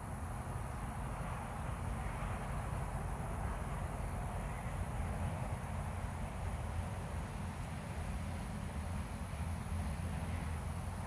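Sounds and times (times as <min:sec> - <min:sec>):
steady high-pitched hiss: 0:00.0 - 0:11.0.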